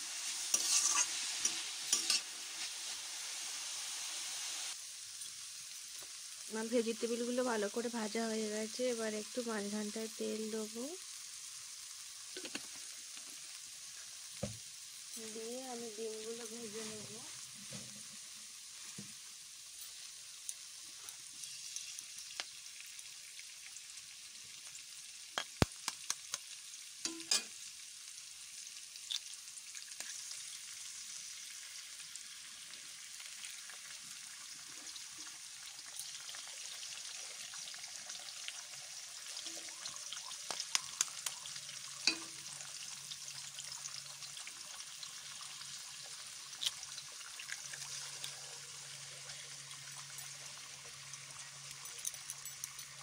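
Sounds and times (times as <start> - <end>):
eggs sizzling in oil: 0.0 - 53.0
eggshells tapped against pan: 25.4 - 26.5.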